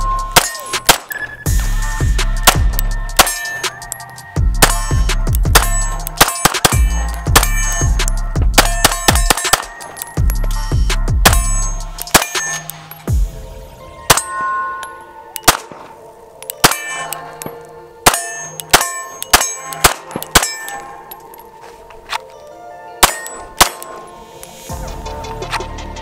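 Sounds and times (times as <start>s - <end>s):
pistol shots: 0.4s - 1.3s, 2.4s - 3.8s, 4.6s - 10.2s, 11.2s - 12.8s, 15.4s - 20.8s, 23.0s - 24.1s.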